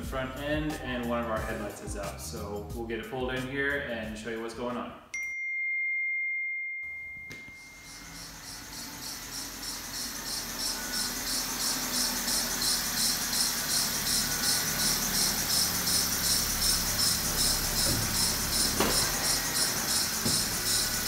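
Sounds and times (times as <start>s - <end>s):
chime tone: 5.1s - 8.7s
high-pitched belt squeak: 7.5s - 21.0s
car engine running: 7.8s - 21.0s.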